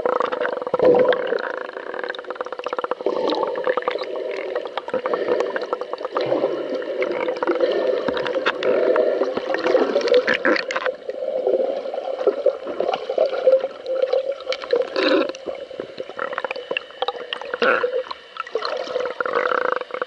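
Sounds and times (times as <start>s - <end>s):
crackle of clicks: 0.0s - 11.2s, 13.8s - 18.2s
underwater water rush: 0.0s - 19.6s.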